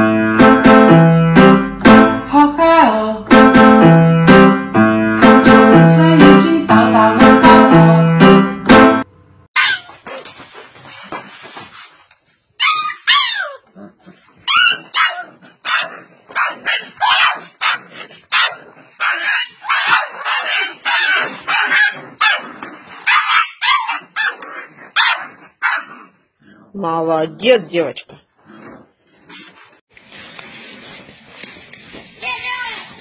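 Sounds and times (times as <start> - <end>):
dog yipping and barking: 9.6 - 10.2, 12.6 - 13.7, 14.4 - 26.0.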